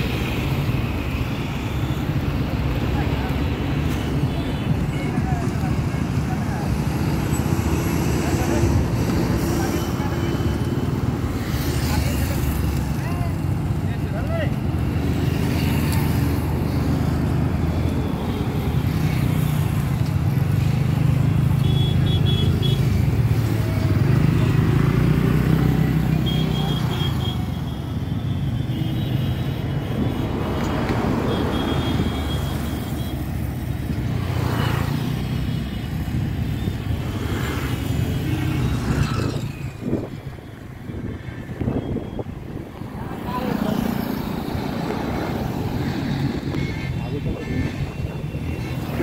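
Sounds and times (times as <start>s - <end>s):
wind noise: 45.6s - 49.0s.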